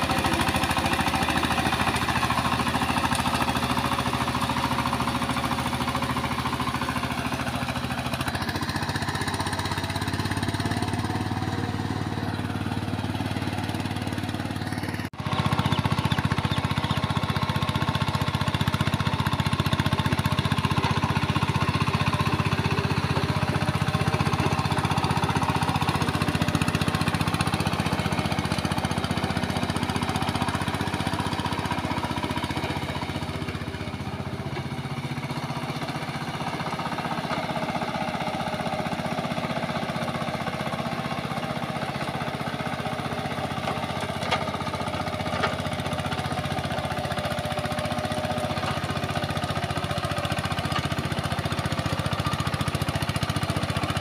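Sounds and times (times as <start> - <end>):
diesel tiller engine knocking: 0.0 - 54.0.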